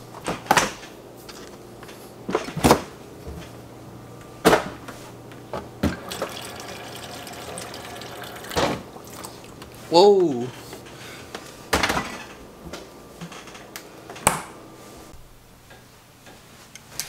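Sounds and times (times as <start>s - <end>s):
refrigerator low hum: 0.0s - 17.0s
water running into bottle: 5.8s - 9.8s.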